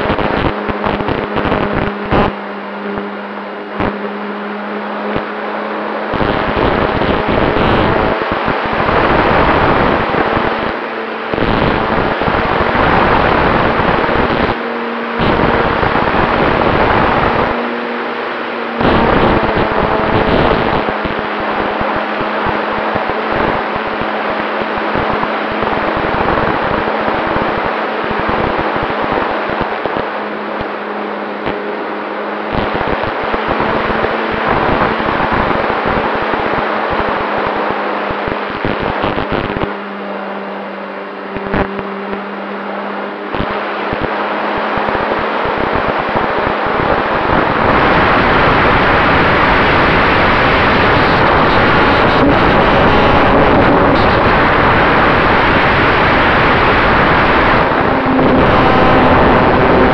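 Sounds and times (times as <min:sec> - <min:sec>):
wind buffeting microphone: 0:44.4 - 0:59.9.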